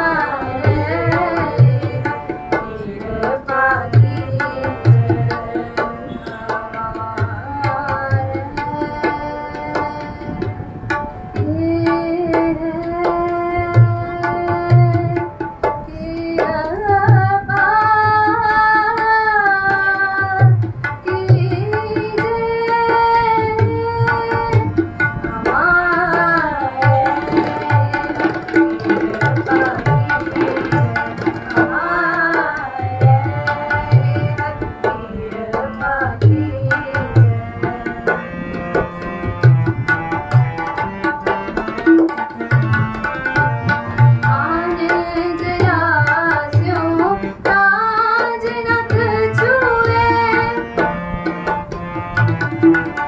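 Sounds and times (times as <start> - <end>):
woman singing a hymn: 0.0 - 2.0, 2.6 - 10.4, 11.4 - 15.2, 15.8 - 24.7, 25.3 - 28.2, 29.3 - 38.1, 44.3 - 50.7
harmonium: 0.0 - 53.0
tabla strokes: 0.0 - 53.0.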